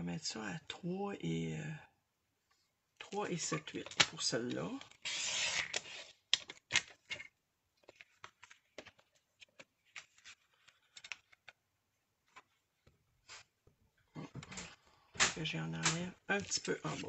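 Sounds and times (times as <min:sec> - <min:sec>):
paper rustling and tapping: 0:07.8 - 0:11.6.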